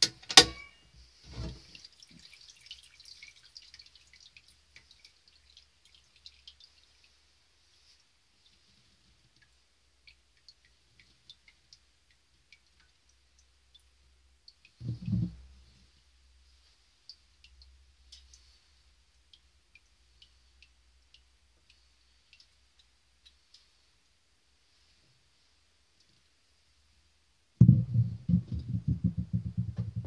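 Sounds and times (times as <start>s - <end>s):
hot oil crackling: 0.0s - 8.5s
dull thump: 27.6s - 30.0s
sharp pops and clicks: 27.6s - 30.0s.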